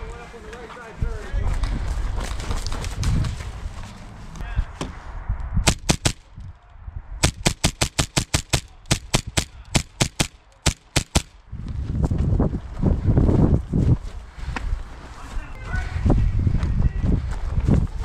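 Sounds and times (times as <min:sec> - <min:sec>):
airsoft gun shots: 0:05.6 - 0:06.3, 0:07.2 - 0:11.4.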